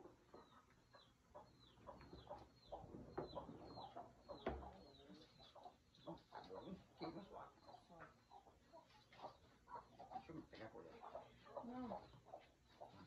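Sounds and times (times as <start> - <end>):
faint chickens clucking: 0.0 - 13.0.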